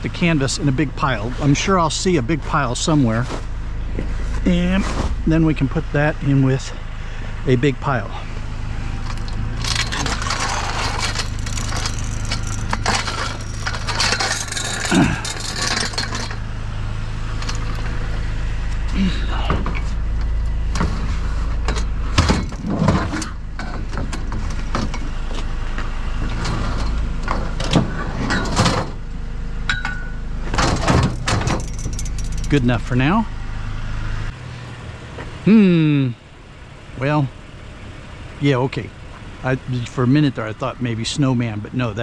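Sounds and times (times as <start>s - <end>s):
steady low hum: 0.0s - 42.0s
metal umbrella frame rattling: 9.6s - 16.4s
sharp metal clunks: 29.7s - 32.6s.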